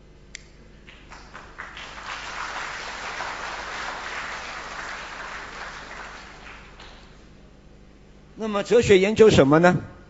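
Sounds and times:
audience applauding: 0.9 - 7.3.

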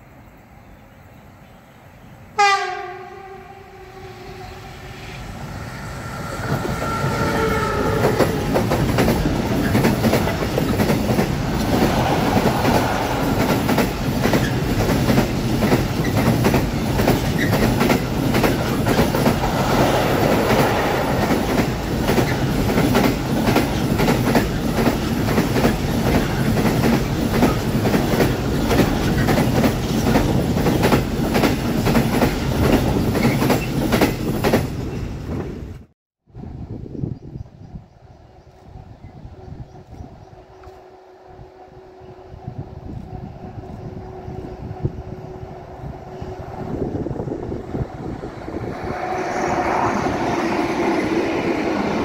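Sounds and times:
locomotive horn blast: 2.4 - 5.2, 6.6 - 8.5
train wheels clattering on rails: 6.4 - 35.6.

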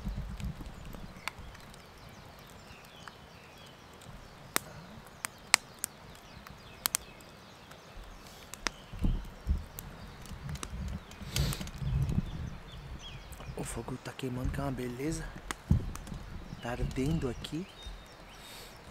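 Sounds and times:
campfire crackling and popping: 0.0 - 18.9
soft low thumps: 8.7 - 18.4.

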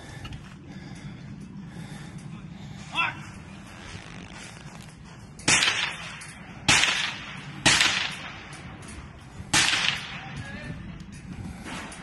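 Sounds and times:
gunshots with echo: 5.5 - 8.4, 9.5 - 10.3.

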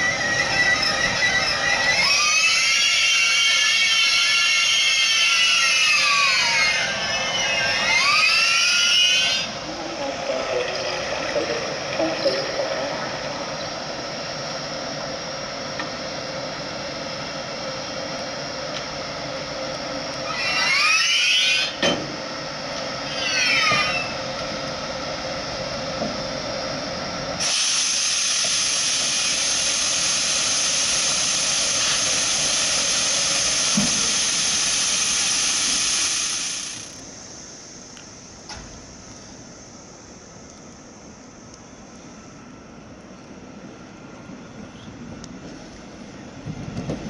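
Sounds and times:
electric locomotive machinery hum: 0.0 - 47.0
compressed air hissing: 27.4 - 37.0.

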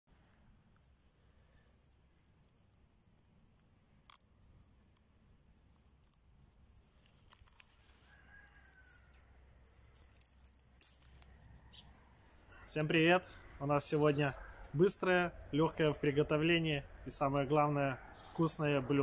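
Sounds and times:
high bird chirps: 0.2 - 7.2.

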